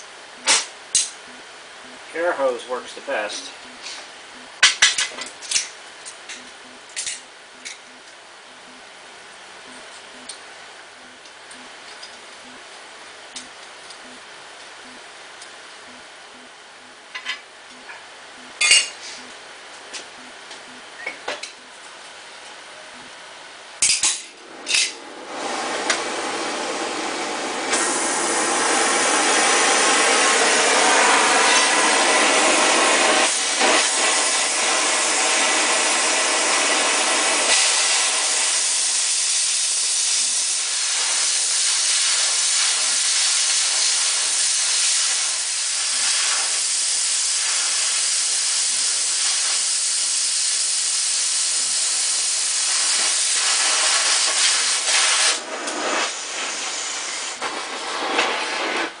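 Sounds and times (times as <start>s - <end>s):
cutting torch flame hissing and roaring: 23.8s - 59.0s.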